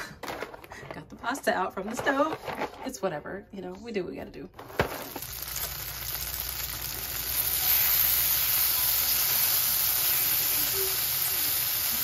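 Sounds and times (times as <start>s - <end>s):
tomatoes sizzling in hot oil: 5.0s - 12.0s.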